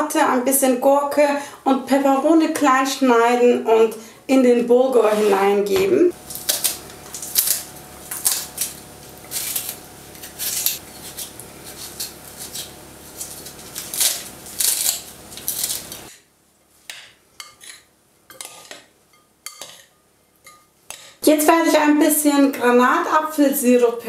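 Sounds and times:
knife cutting vegetables: 6.3s - 16.2s.

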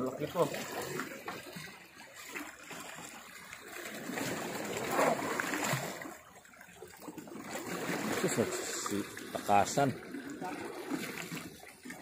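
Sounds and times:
seawater lapping against rocks: 0.0s - 12.0s.

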